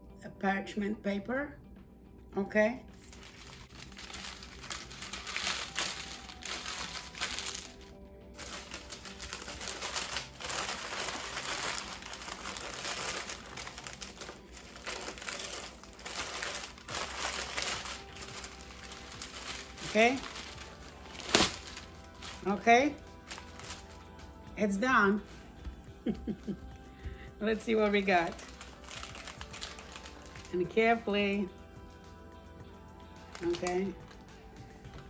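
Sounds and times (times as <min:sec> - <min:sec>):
parchment paper crinkling: 0:03.0 - 0:24.0, 0:27.6 - 0:30.5, 0:33.3 - 0:34.2.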